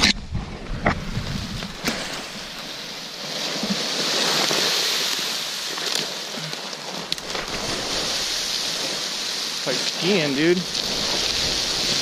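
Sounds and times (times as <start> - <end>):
twig clicks: 5.7 - 7.7.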